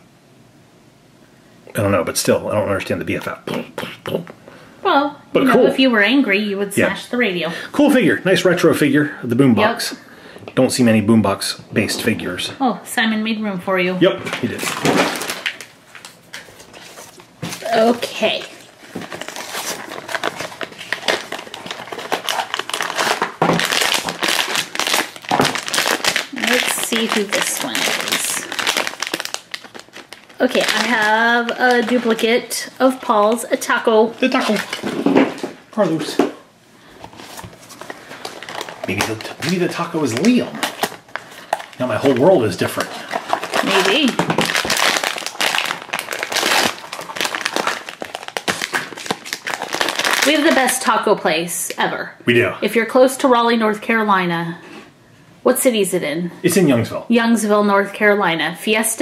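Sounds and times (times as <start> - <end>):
packaging crinkling: 14.3 - 36.2, 36.9 - 51.0.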